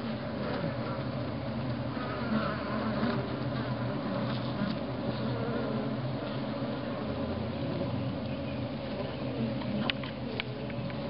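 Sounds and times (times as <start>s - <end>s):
bees droning: 0.0s - 11.0s.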